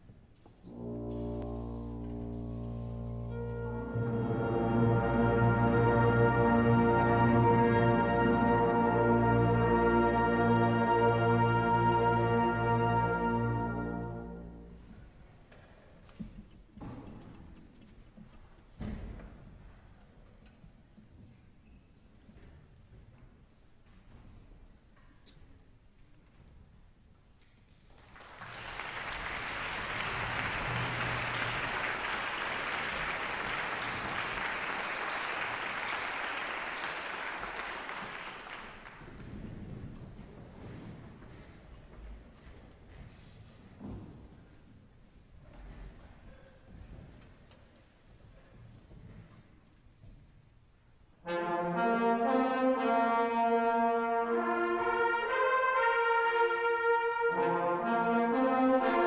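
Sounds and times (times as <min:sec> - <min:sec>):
concert band playing brass chords: 0:00.6 - 0:14.8, 0:51.3 - 0:59.0
audience applauding: 0:27.9 - 0:39.3.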